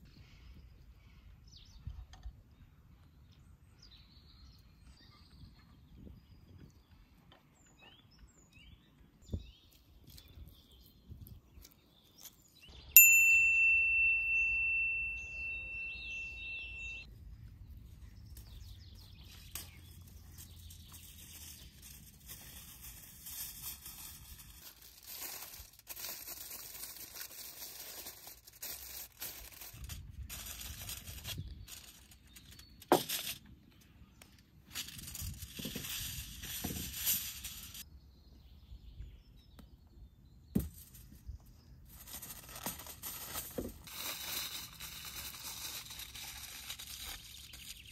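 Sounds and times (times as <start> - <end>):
sharp metallic ding: 13.0 - 17.1
crinkling and rustling: 19.2 - 33.9, 34.7 - 37.8, 41.9 - 47.9
aluminium foil crackling and tearing: 20.3 - 33.5, 34.7 - 37.8, 41.9 - 47.9.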